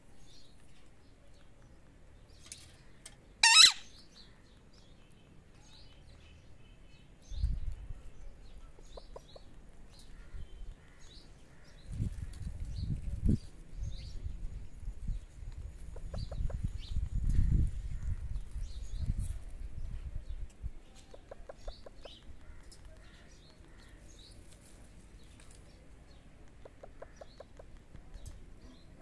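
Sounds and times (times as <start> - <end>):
parakeet squawk: 3.4 - 3.9
low microphone rumble: 11.8 - 20.8.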